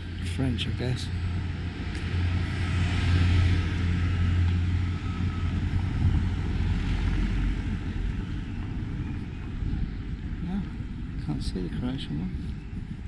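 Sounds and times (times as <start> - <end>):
vehicle passing by: 0.5 - 8.6.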